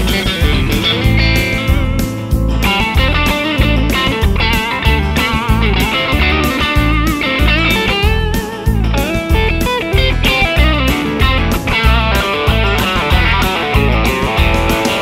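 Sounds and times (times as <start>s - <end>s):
overdriven electric guitar lead: 0.0s - 15.0s.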